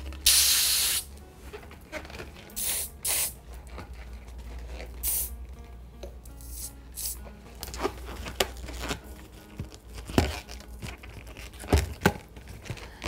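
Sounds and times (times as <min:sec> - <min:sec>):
latex balloons rubbing and crinkling: 0:00.8 - 0:05.1, 0:07.6 - 0:13.0.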